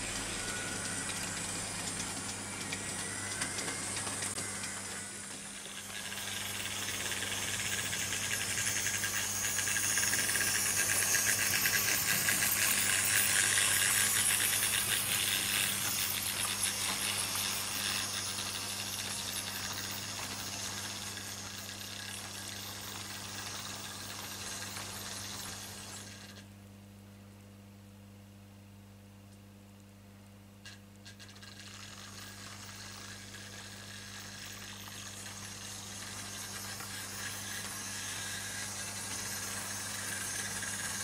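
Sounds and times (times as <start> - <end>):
model train wheels rattling: 0.0 - 26.4, 30.6 - 41.0
steady low hum: 0.0 - 30.6.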